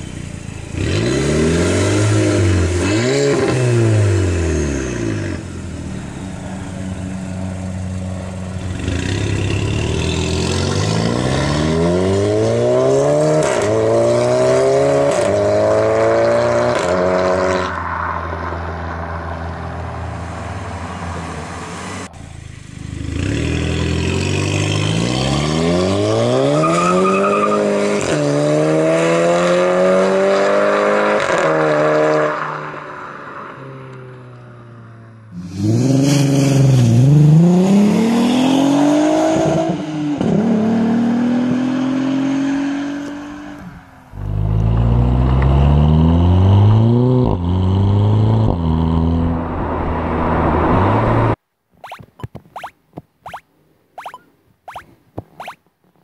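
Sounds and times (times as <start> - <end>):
car engine revving and accelerating: 0.6 - 33.0, 35.4 - 51.4.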